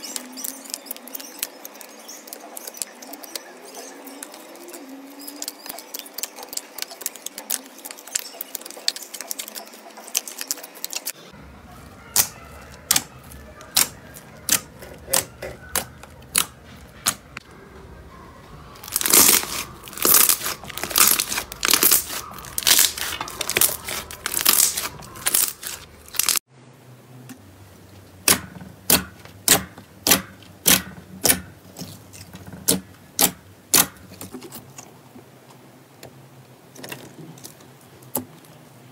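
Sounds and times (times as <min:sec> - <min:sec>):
slime squelching and popping: 0:18.8 - 0:26.4.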